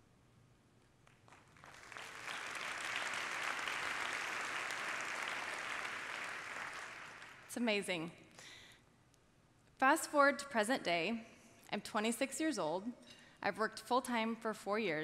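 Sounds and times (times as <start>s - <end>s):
audience applause: 1.3s - 7.5s.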